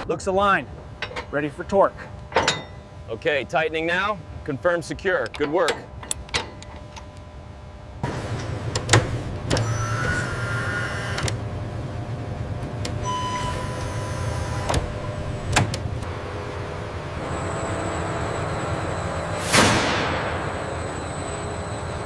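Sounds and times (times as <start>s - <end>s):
machinery hum: 0.0s - 22.0s
electric motor whines: 9.5s - 11.4s, 13.0s - 15.6s.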